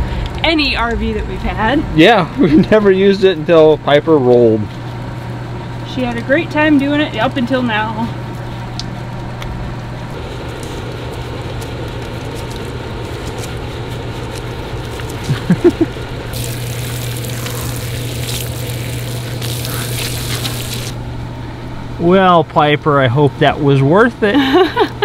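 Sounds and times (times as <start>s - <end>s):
steady low hum: 0.0s - 25.0s
water hissing from shower head: 16.3s - 21.0s.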